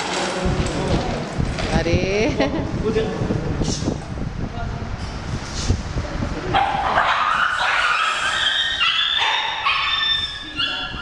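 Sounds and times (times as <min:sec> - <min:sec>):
puppies whining and yelping: 0:07.0 - 0:11.0.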